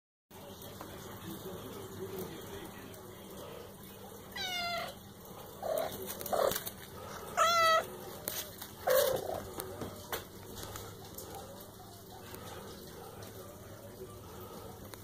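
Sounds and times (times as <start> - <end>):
kitten meowing: 4.4 - 5.0, 7.4 - 7.9.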